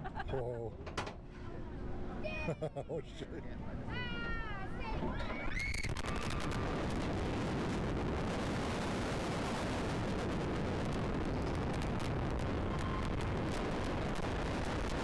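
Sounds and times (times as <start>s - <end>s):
wind rushing over microphone: 5.5s - 15.0s.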